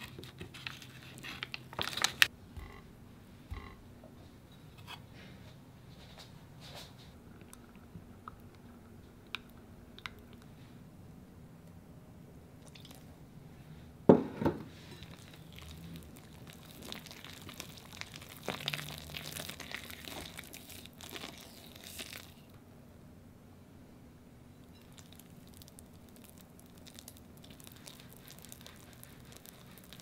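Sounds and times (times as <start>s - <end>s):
whisk stirring batter in glass bowl: 26.8s - 30.0s.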